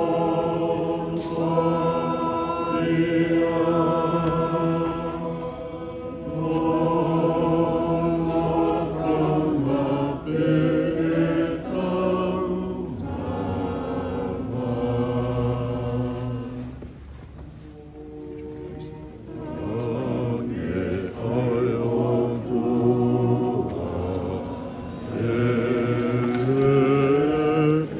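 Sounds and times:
choir singing a hymn: 0.0 - 17.0, 17.6 - 27.9.

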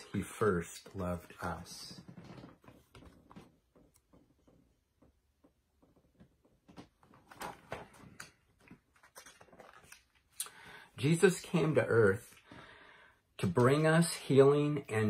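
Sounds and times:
book rustling: 6.7 - 10.4.

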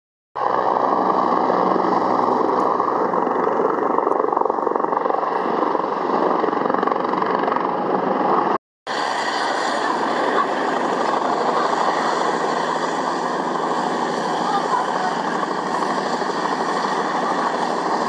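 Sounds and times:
steady engine drone: 8.9 - 18.0.

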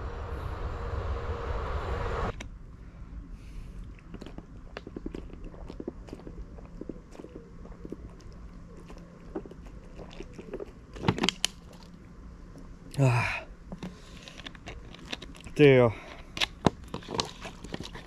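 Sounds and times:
person gulping water: 3.9 - 11.0
plastic bottle crackling: 16.4 - 18.0.

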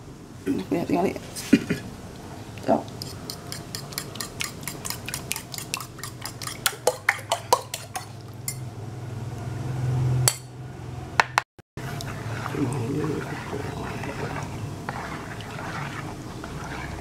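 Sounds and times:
metal spoon clinking on bowl: 3.0 - 8.6
low steady hum: 11.8 - 17.0.

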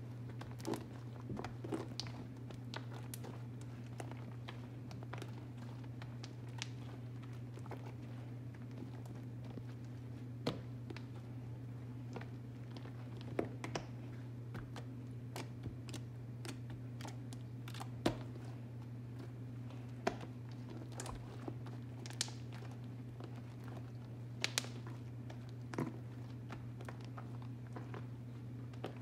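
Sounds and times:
steady low hum: 0.0 - 29.0
slime clicking and popping: 24.4 - 24.9.

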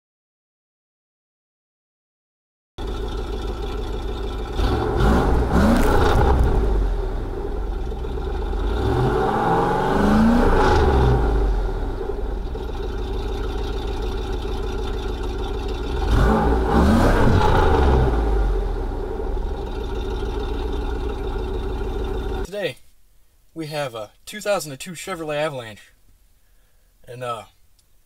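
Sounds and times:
wheel spinning in snow: 2.8 - 9.0, 19.4 - 22.5
car engine revving hard: 2.8 - 22.5.

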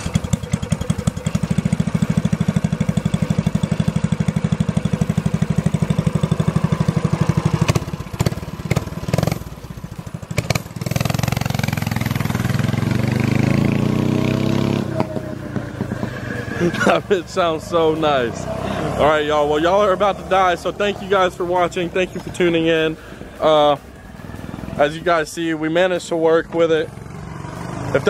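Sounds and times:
small motorbike engine running: 0.0 - 20.4.

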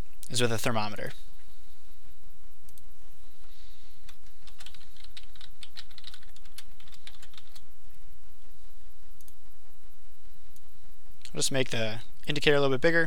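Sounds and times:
steady low hum: 0.0 - 13.0
typing on keyboard: 4.1 - 7.6.

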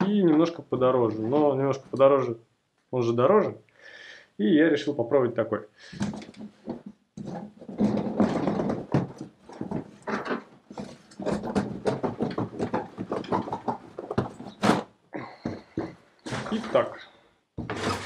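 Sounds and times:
cardboard scraping and rustling: 6.0 - 14.9, 17.6 - 18.0.

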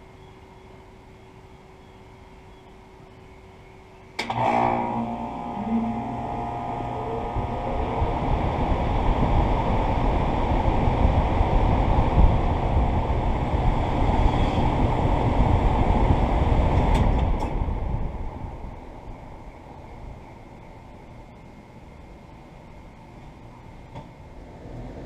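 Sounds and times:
condenser fan air noise: 0.0 - 25.0
air conditioner switch click: 4.2 - 4.4
compressor humming: 4.2 - 20.4.

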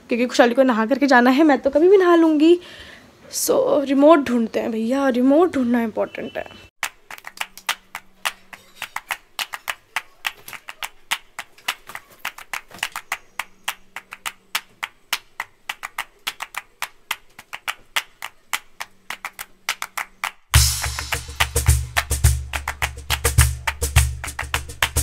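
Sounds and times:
rapid clicks and taps: 6.8 - 25.0.

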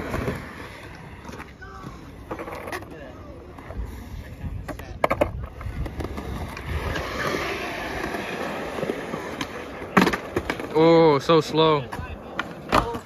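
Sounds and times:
skateboard clacks: 0.0 - 13.0
skateboard wheels rolling on concrete: 0.0 - 13.0.

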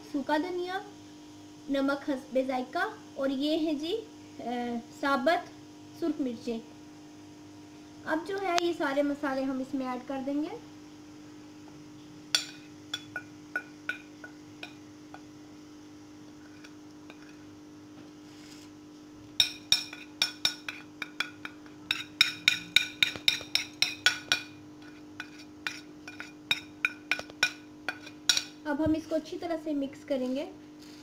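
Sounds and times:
steady low hum: 0.0 - 31.0
spoon clinking on plate and bowl: 12.3 - 15.2, 19.4 - 24.6, 25.2 - 28.6.

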